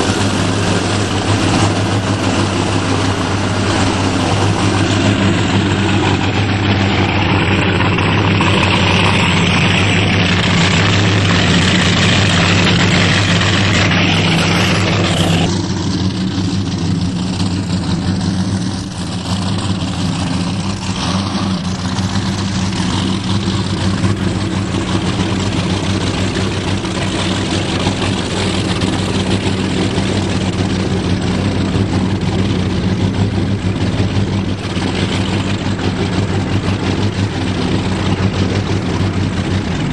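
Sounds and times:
powerboat engine idling: 0:00.0 - 0:39.9.

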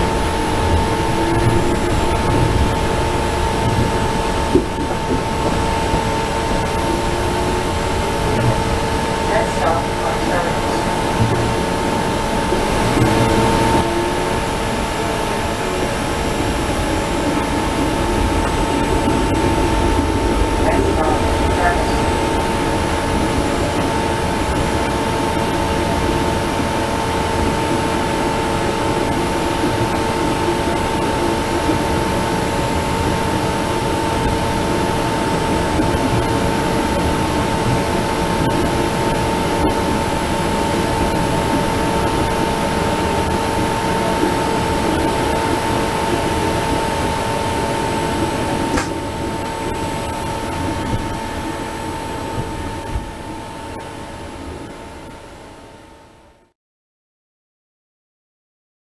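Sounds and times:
streetcar wheels rumbling on rails: 0:00.0 - 0:55.2
constant hum: 0:00.0 - 0:56.5.

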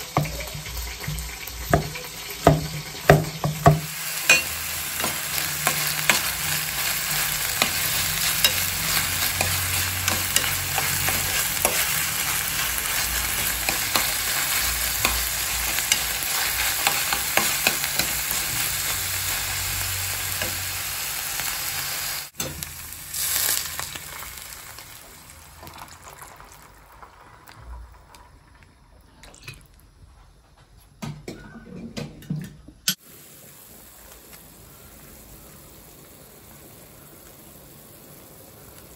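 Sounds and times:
meat and onions sizzling in oil: 0:00.0 - 0:28.1, 0:33.0 - 0:38.9
metal ladle scraping a pan: 0:04.2 - 0:19.0.

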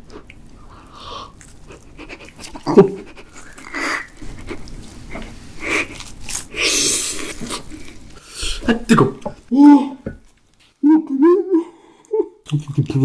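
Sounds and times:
chewing: 0:00.0 - 0:08.2.

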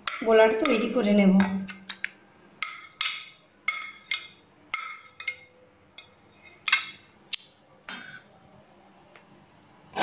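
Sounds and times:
glass bowl clinking on steel bowl: 0:02.6 - 0:07.0.

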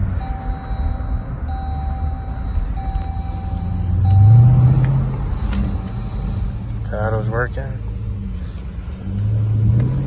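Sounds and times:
car engine rumbling: 0:00.0 - 0:10.0
long electronic beeps: 0:00.1 - 0:06.6.

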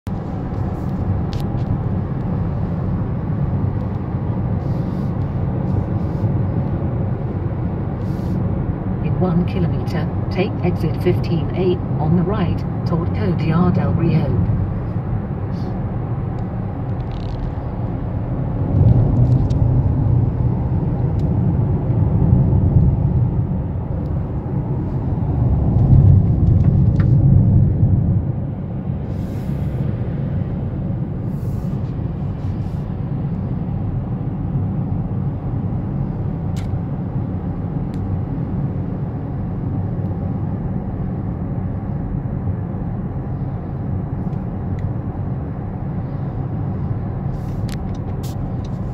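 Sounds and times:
car cabin road rumble: 0:00.1 - 0:48.9.

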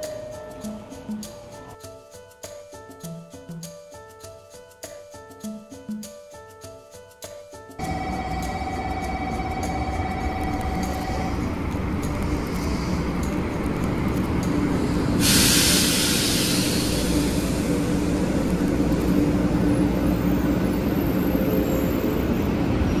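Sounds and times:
train running rumble: 0:07.8 - 0:23.0
sudden hiss: 0:14.7 - 0:18.9.

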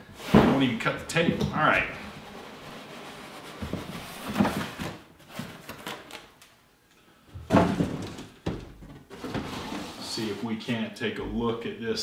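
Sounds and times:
cardboard box scraping: 0:01.9 - 0:05.0, 0:09.1 - 0:10.4
cardboard boxes knocking: 0:07.5 - 0:09.4.

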